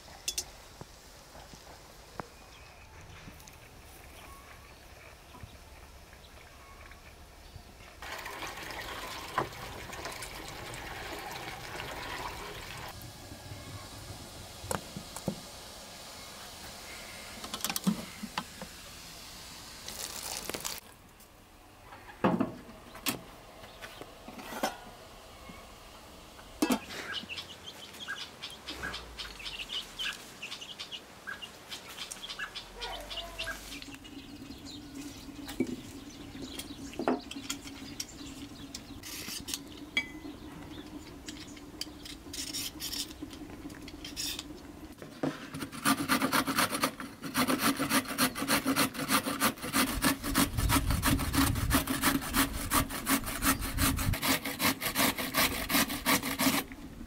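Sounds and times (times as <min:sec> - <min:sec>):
peeler scraping carrots: 0:45.3 - 0:56.7
carrot grating on metal grater: 0:45.4 - 0:56.7.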